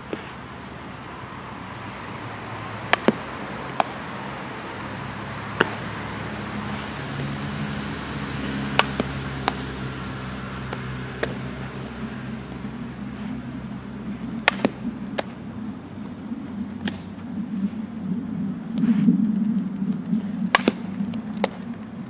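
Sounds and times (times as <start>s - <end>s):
low hum: 0.0s - 22.0s
softballs knocking into glove: 2.5s - 4.9s, 5.5s - 7.2s, 8.4s - 15.4s, 20.5s - 21.9s.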